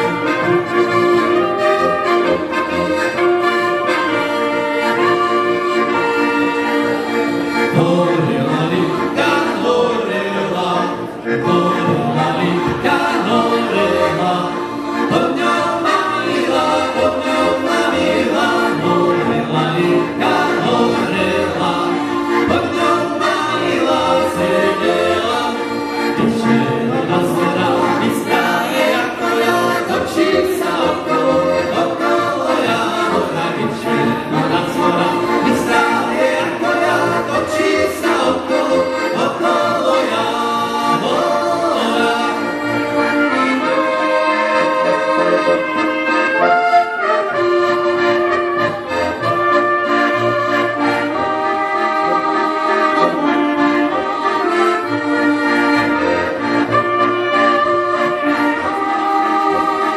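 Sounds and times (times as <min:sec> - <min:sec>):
accordion: 0:00.0 - 0:59.9
brass playing: 0:00.0 - 0:59.9
men singing together: 0:07.7 - 0:42.7.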